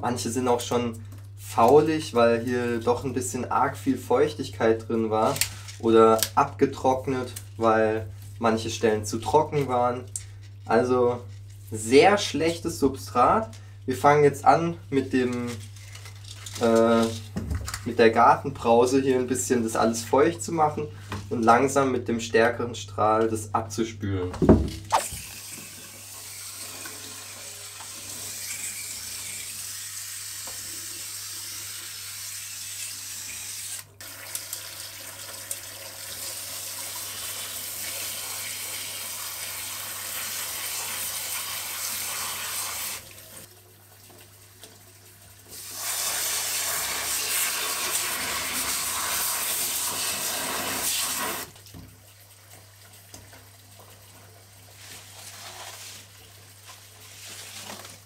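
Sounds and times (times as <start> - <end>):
hose spraying water: 24.9 - 33.6, 36.2 - 43.1, 45.5 - 51.5.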